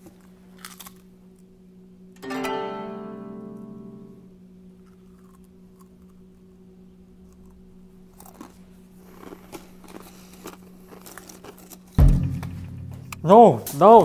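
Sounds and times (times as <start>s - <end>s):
steady low hum: 11.7s - 14.0s.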